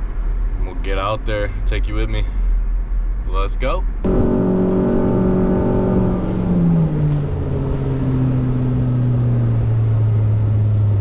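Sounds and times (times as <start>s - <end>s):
boat motor running: 4.0s - 11.0s.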